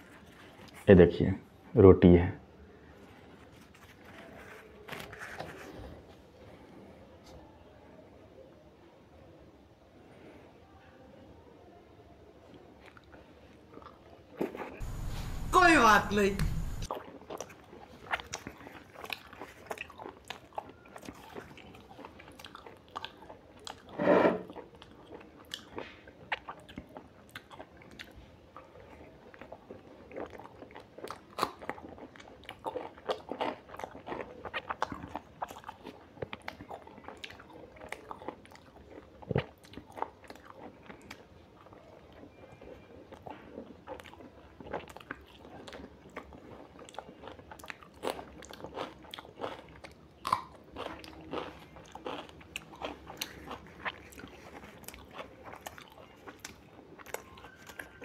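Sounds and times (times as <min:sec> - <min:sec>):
person chewing food: 0:12.4 - 0:15.4, 0:16.6 - 0:58.0
mouth clicks and smacks: 0:50.2 - 0:51.2.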